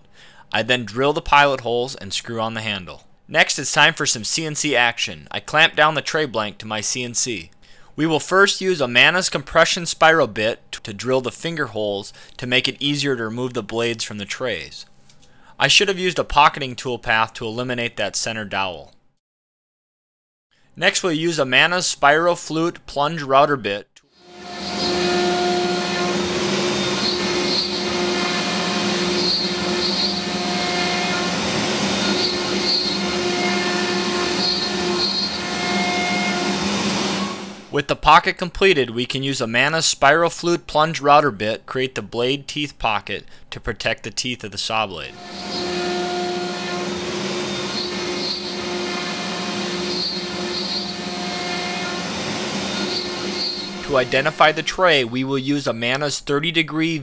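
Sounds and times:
dust collection hose suction: 24.2s - 37.7s, 45.1s - 55.0s
machine whining tones: 24.2s - 37.7s, 45.1s - 55.0s
router spindle cutting wood: 24.2s - 37.7s, 45.1s - 54.7s.

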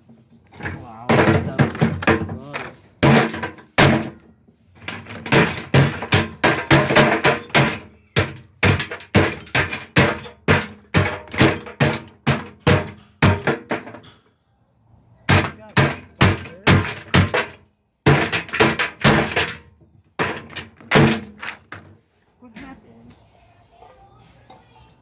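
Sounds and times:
hammer smashing pottery in wheelbarrow: 0.5s - 14.1s, 15.3s - 21.8s.

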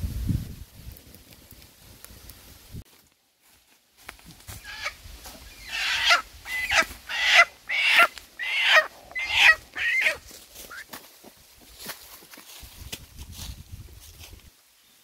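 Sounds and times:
hen squawking: 4.6s - 10.8s.

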